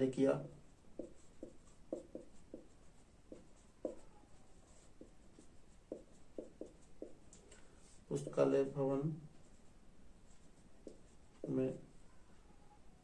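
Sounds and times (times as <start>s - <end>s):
marker squeaking on whiteboard: 0.8s - 7.4s, 10.3s - 13.0s.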